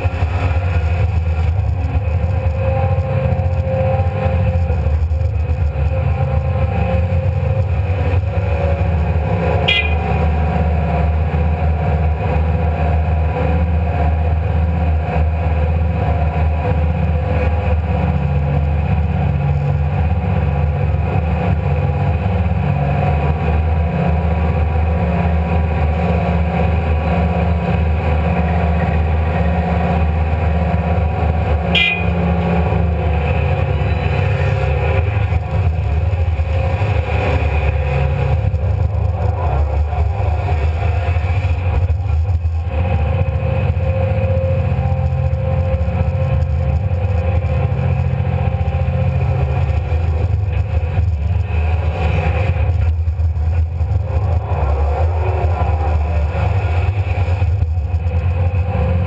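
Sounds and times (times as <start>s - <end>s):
excavator diesel engine running: 0.0s - 59.0s
sharp clack: 9.6s - 10.3s, 31.7s - 32.5s.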